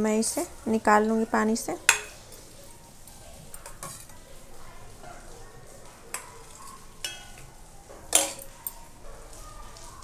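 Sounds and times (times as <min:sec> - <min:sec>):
spoon clinking on steel: 0:01.9 - 0:02.4, 0:06.1 - 0:07.5, 0:08.1 - 0:08.9.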